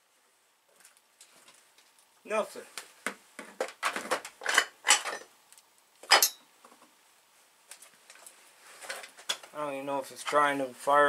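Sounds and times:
metal tools clinking and scraping: 4.4s - 5.3s, 6.1s - 6.4s.

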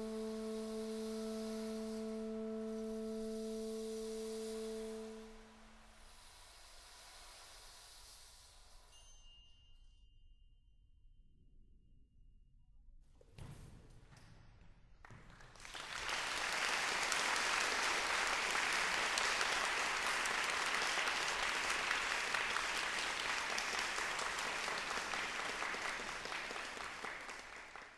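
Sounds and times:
audience applauding: 15.1s - 27.9s.

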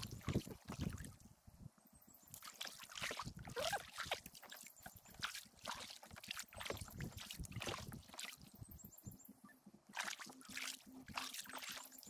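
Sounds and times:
paddle strokes in water: 2.3s - 8.7s, 9.9s - 12.0s.

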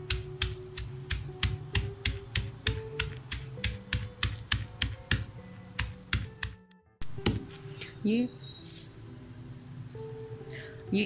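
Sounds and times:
pestle pounding in stone mortar: 0.0s - 7.5s.

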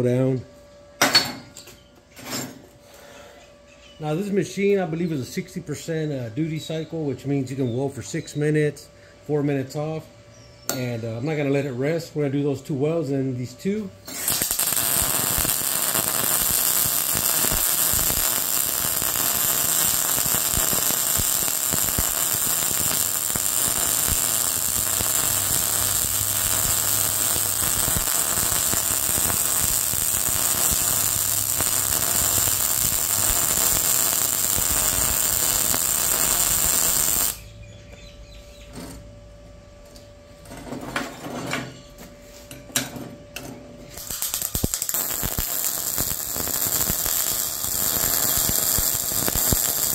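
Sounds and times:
faint steady hum: 0.0s - 49.9s
welding arc: 14.1s - 37.5s, 43.9s - 49.9s.

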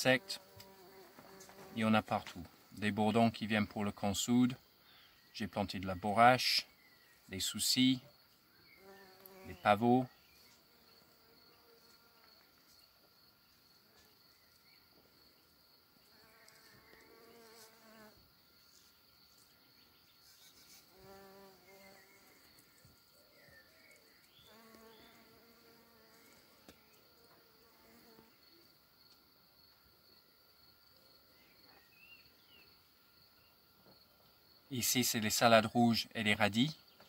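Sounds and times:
bumblebee buzzing: 0.2s - 1.8s, 8.7s - 9.7s, 16.1s - 18.2s, 20.4s - 22.8s, 24.3s - 26.6s, 27.2s - 28.4s.

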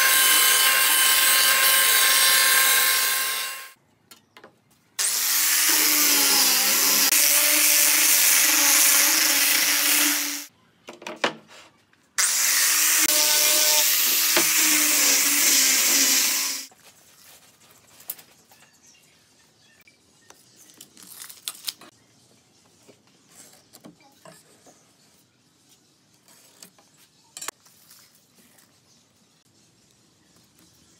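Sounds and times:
electric sander on wood: 0.0s - 3.7s, 5.0s - 10.5s, 12.2s - 16.7s.

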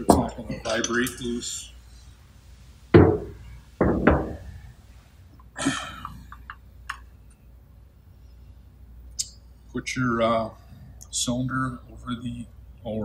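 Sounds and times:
light metal clicks and clinks: 0.1s - 1.4s
metal knocks on bench: 3.0s - 4.5s.

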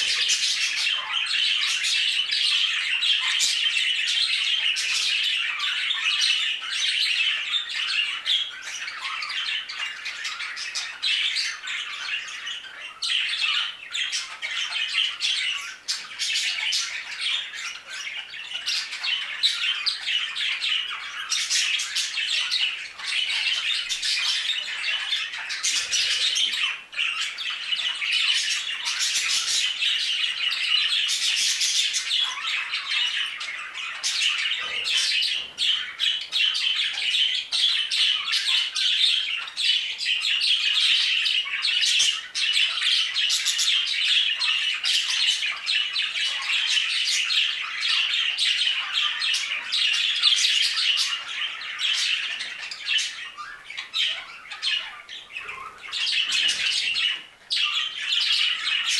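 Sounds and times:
budgerigars chattering: 0.0s - 58.9s.

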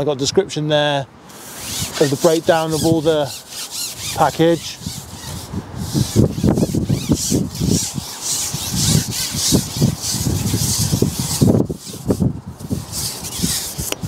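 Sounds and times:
hissing rustle: 1.3s - 14.0s
wind buffeting microphone: 4.0s - 14.0s.

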